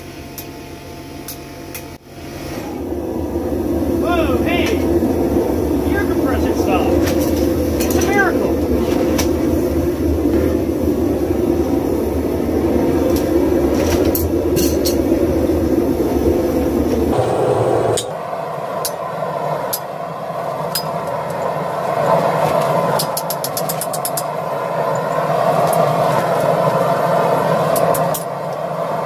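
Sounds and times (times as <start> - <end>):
low roar: 2.4 - 23.0.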